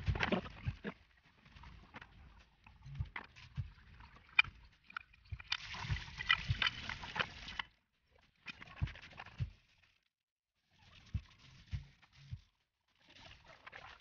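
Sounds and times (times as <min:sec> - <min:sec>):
hose water splashing into sink: 0:05.2 - 0:07.6, 0:13.0 - 0:14.0.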